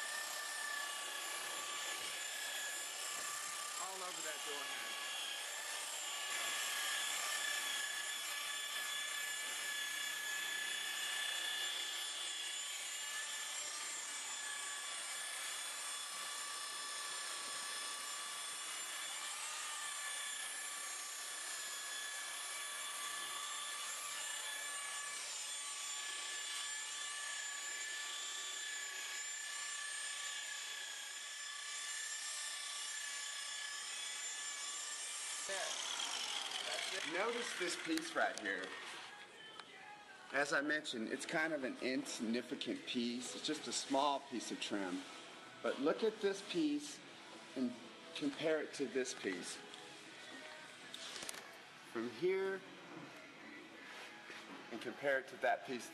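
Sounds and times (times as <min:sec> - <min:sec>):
electric polisher whining: 0:00.0 - 0:40.6, 0:41.5 - 0:54.6
buffing pad rubbing paintwork: 0:52.9 - 0:54.8.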